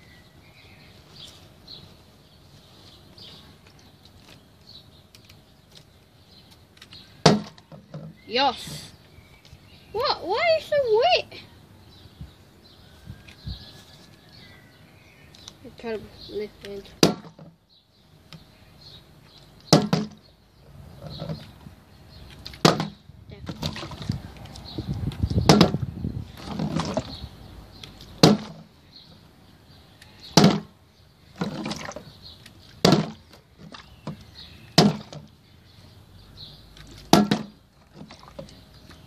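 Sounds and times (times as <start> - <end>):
plastic bottle landing on wood: 7.2 - 8.2, 17.0 - 17.6, 19.7 - 20.3, 22.6 - 23.9, 25.4 - 25.8, 28.2 - 28.7, 30.3 - 30.7, 32.8 - 33.3, 34.8 - 35.3, 37.1 - 38.5
soft rustling: 12.9 - 14.3.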